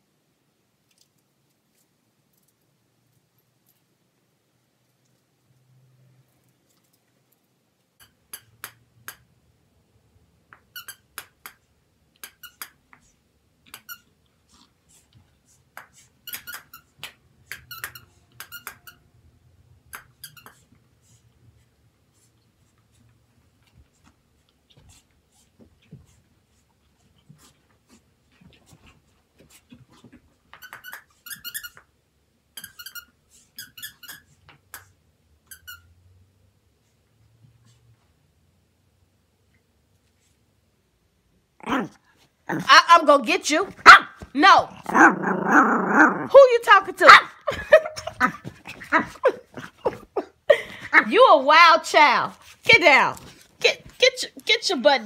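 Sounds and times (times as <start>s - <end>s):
dog toy squeaking: 10.7s - 11.2s, 12.2s - 12.7s, 16.2s - 19.0s, 20.0s - 20.6s, 30.6s - 31.8s, 32.6s - 34.3s, 35.5s - 35.9s.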